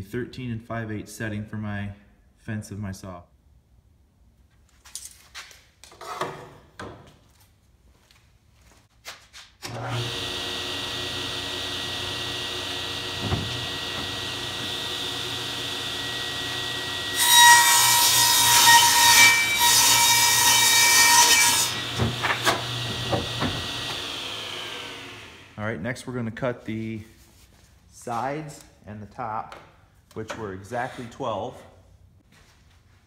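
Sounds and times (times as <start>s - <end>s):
table saw running: 9.7s - 25.6s
wood knocks: 13.2s - 14.2s, 22.0s - 23.8s.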